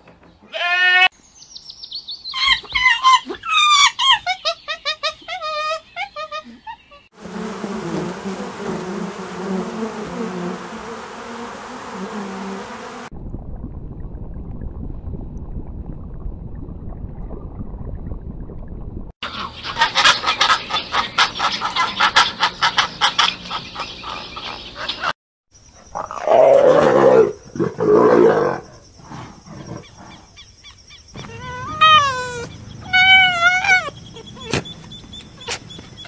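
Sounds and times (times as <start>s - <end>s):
leopard growling: 25.9s - 30.3s
high whining calls: 31.2s - 36.0s.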